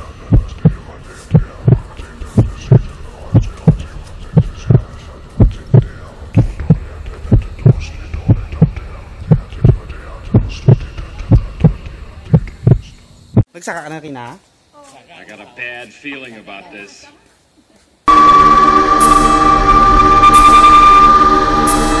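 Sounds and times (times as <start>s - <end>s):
heartbeat thumps: 0.0s - 13.5s.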